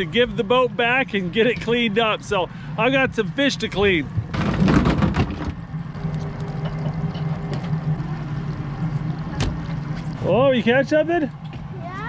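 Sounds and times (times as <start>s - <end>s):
outboard motor idling: 0.0s - 12.0s
fish clattering in fish box: 4.2s - 5.6s.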